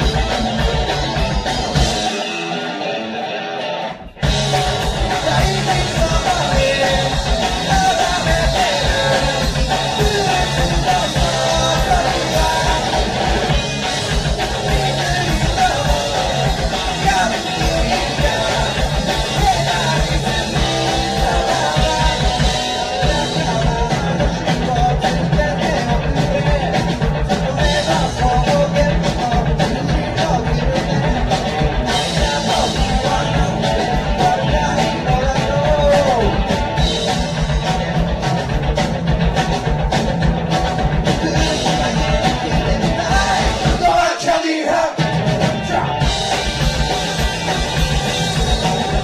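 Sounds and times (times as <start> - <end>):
drum kit: 0.0 - 3.1, 3.9 - 49.0
bass guitar: 0.0 - 49.0
distorted electric guitars: 0.0 - 49.0
person singing: 4.6 - 13.6, 14.4 - 36.4, 41.0 - 46.3.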